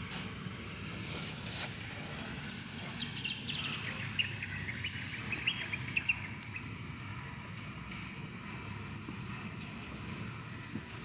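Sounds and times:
low outdoor rumble: 0.0s - 11.0s
high chirping calls: 2.8s - 7.4s.

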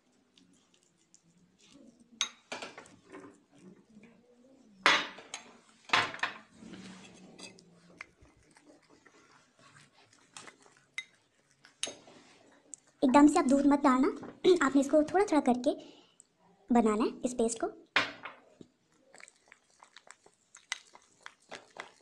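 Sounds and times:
spoon scraping a bowl: 6.4s - 7.6s, 9.7s - 12.4s.

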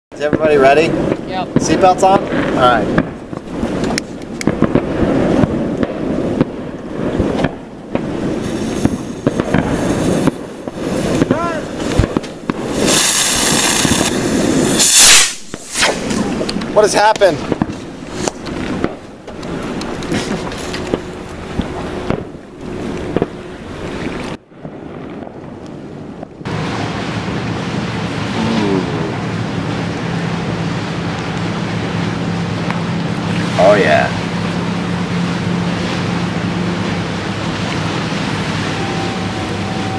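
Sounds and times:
firework pops and cracks: 0.2s - 23.4s, 24.2s - 26.5s
wind on microphone: 0.2s - 39.9s
firework fuse hissing: 0.4s - 22.4s
sharp pop: 14.8s - 19.0s.

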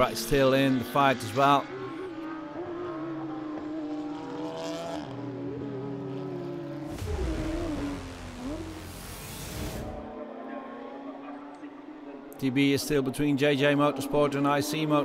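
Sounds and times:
race car engine high revs: 1.7s - 10.1s
deeper rumble: 6.9s - 10.1s.

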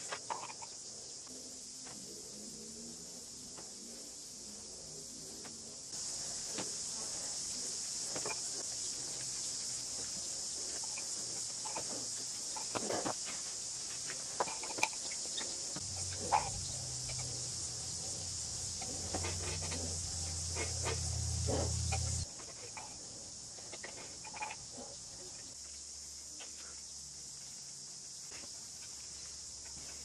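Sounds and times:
insects chirring: 0.0s - 30.0s
low hum: 15.8s - 22.2s.

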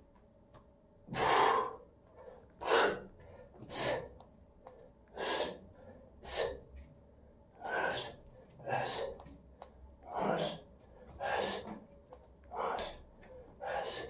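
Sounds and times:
man breathing forcefully: 1.1s - 1.9s, 2.6s - 4.2s, 5.2s - 6.6s, 7.6s - 9.2s, 10.1s - 11.8s, 12.5s - 14.0s.

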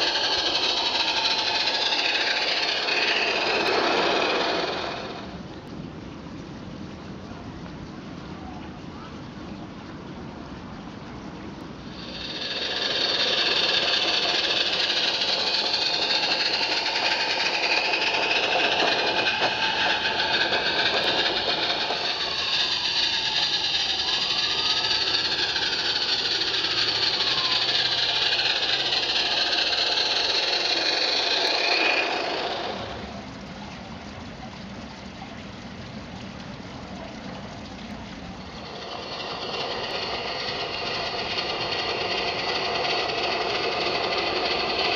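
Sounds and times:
steam locomotive chuffing and hiss: 0.0s - 5.4s, 11.8s - 33.4s, 36.4s - 44.9s.

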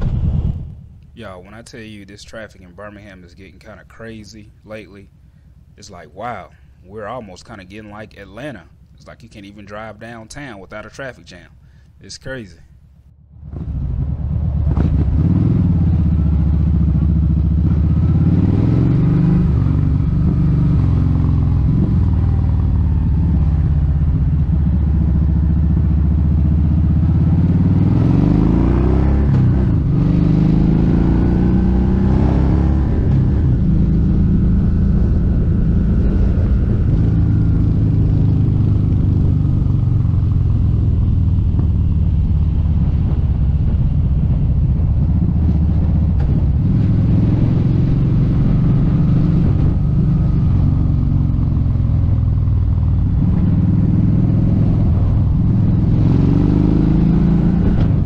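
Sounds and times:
motorcycle engine running: 12.8s - 58.0s.

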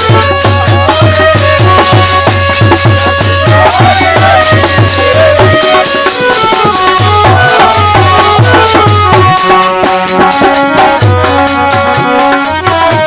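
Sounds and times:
hand drum beat: 0.0s - 13.0s
harmonium melody: 0.0s - 13.0s.

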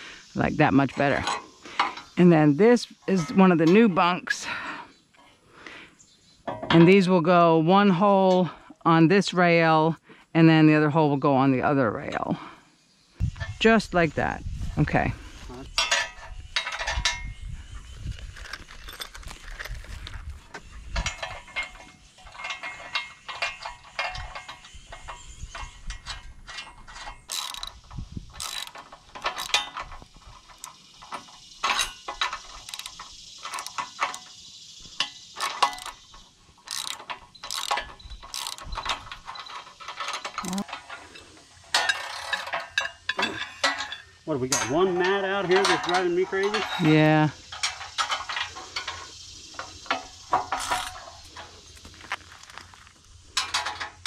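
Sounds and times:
metal clinks: 15.7s - 51.8s
ratchet wrench clicking: 26.9s - 40.8s.

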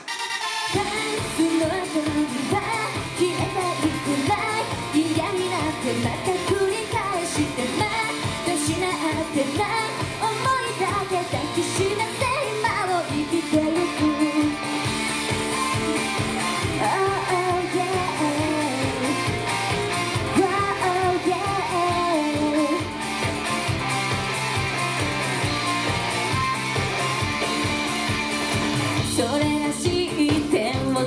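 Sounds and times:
pop song over loudspeakers: 0.0s - 31.0s.

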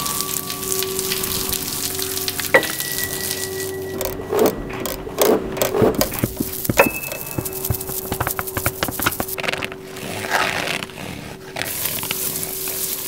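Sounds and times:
crackling sizzling texture: 0.0s - 13.0s
low hum: 0.4s - 9.9s
ringing tone: 2.6s - 5.0s, 6.1s - 8.1s
rustling bursts: 4.8s - 10.8s.

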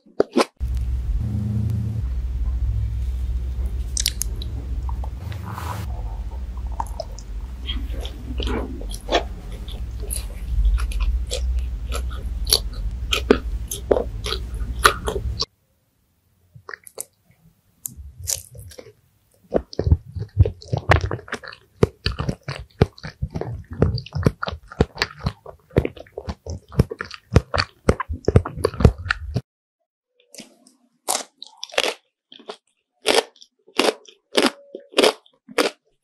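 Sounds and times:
person chewing crunchy food: 3.9s - 5.0s, 5.9s - 15.5s, 16.6s - 17.2s, 17.9s - 29.4s, 30.4s - 36.0s.

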